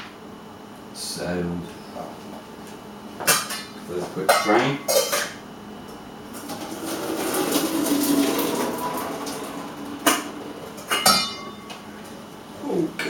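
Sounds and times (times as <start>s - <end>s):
hot water pouring into sink: 6.3s - 11.9s.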